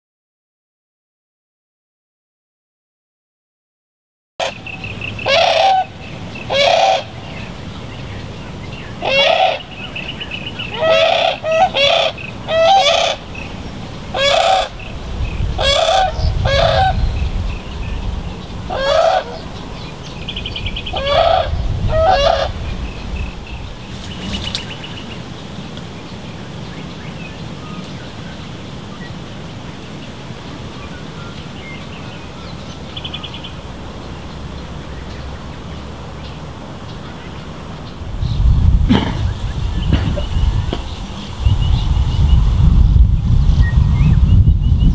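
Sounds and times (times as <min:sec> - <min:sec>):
brolgas honking calls: 0:04.4 - 0:07.1, 0:09.0 - 0:09.7, 0:10.7 - 0:13.2, 0:14.1 - 0:14.9, 0:15.6 - 0:17.0, 0:18.7 - 0:19.5, 0:21.0 - 0:22.6.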